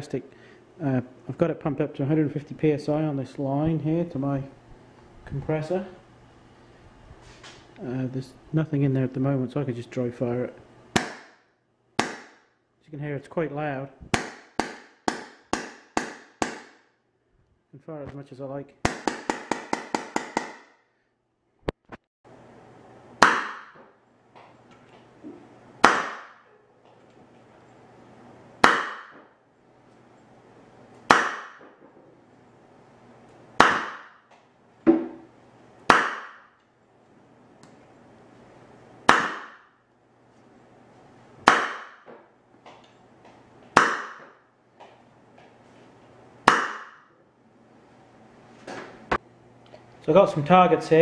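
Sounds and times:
air pistol blasts: 28.6 - 29.2, 31.1 - 31.6, 33.6 - 34.2.

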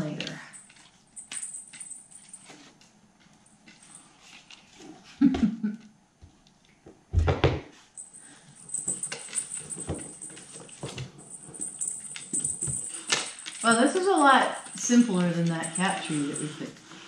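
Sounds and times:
woven basket rustling: 8.6 - 17.0.

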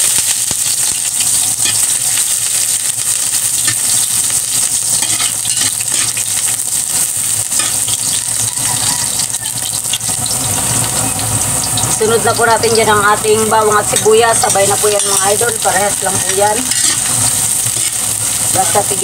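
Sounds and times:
ginger sizzling in hot oil: 0.0 - 19.0
metal spatula scraping wok: 0.9 - 2.4, 4.8 - 11.9, 13.6 - 19.0.

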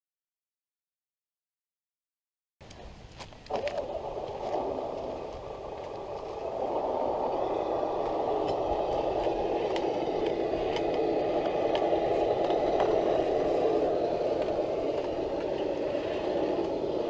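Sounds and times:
tyres clicking on rock: 2.6 - 17.0
toy truck motors whirring: 3.8 - 17.0.

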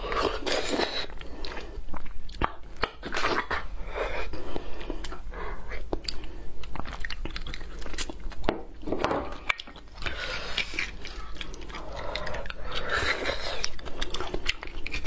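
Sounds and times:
wet chewing and smacking: 0.0 - 3.7, 4.5 - 15.0.

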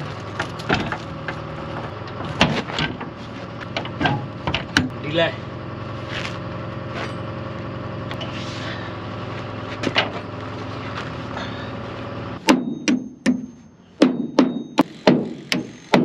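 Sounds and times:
diesel truck engine idling: 0.0 - 13.9
hammer striking metal: 12.4 - 16.0.

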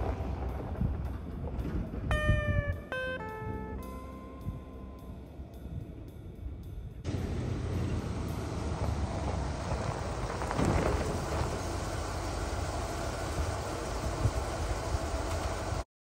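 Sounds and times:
truck engine running: 7.0 - 15.8.

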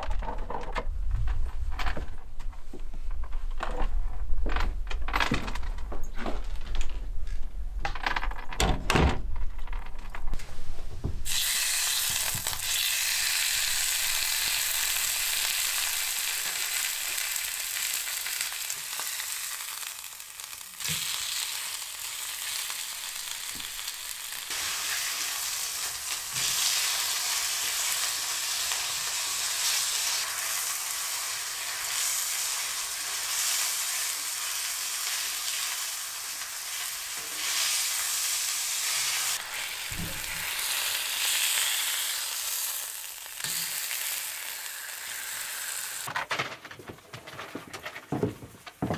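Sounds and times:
steaks sizzling in a pan: 11.3 - 46.1.

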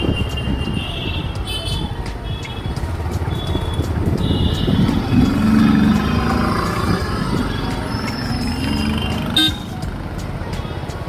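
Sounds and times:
vehicle engine and road rumble: 0.0 - 11.0
high horn beeps: 3.3 - 5.7, 7.7 - 9.7
low horn tone: 3.3 - 9.7.

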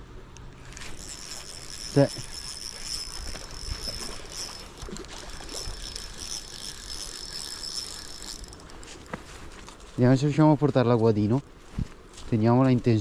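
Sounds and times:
reel clicking: 0.4 - 9.9
fishing reel whirring: 0.5 - 9.8.

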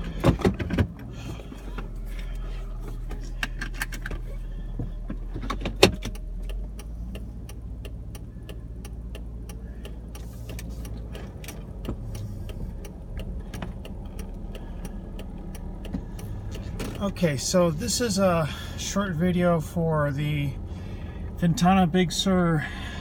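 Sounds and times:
car interior rumble: 0.0 - 23.0
light ticking: 4.4 - 17.6.

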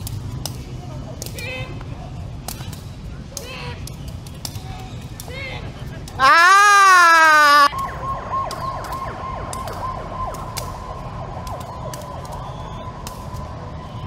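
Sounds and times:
loud drawn-out cry: 6.2 - 7.7
siren with falling sweeps: 6.2 - 14.0.

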